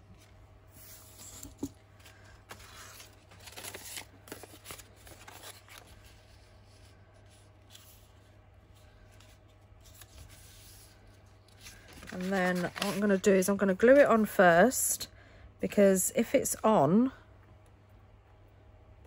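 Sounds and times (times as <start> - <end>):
paper rustling: 0.2 - 8.2, 8.8 - 14.0.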